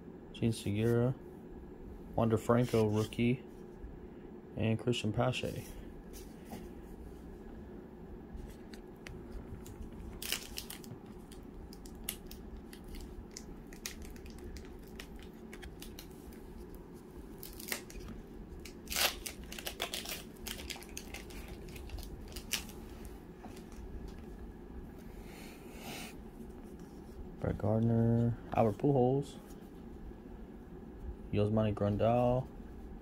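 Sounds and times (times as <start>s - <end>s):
foil wrapper crinkling and tearing: 9.6s - 16.4s, 17.3s - 23.8s.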